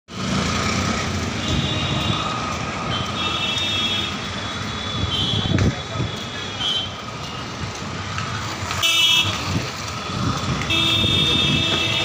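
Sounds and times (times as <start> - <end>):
street traffic: 0.1 - 12.0
vehicle horn honk: 10.7 - 12.0.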